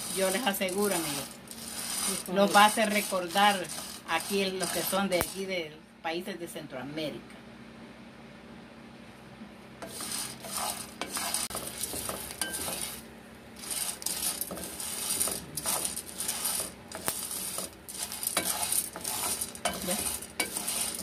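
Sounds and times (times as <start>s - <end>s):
beans scraping in a pan: 0.0s - 5.6s, 9.8s - 21.0s.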